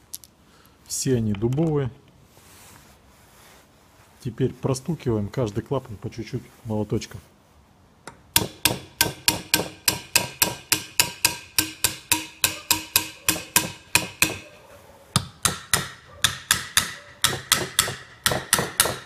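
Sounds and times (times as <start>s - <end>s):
small hammer tapping metal: 8.1s - 14.4s, 15.2s - 19.0s.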